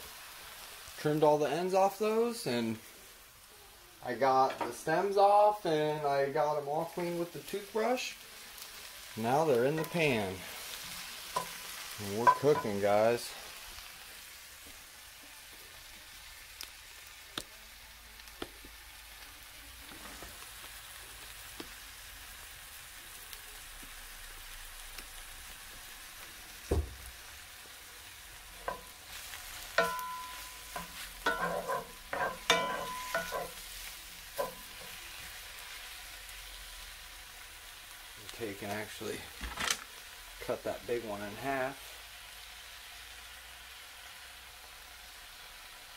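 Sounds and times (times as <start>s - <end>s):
mushrooms sizzling in skillet: 0.0s - 45.9s
spatula scraping pan: 9.6s - 12.8s, 28.6s - 35.3s
thump: 26.7s - 27.1s.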